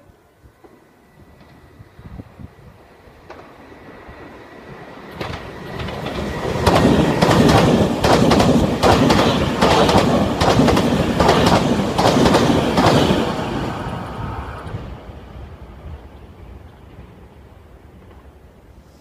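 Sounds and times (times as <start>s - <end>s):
train wheels clattering over rail joints: 5.1s - 13.4s.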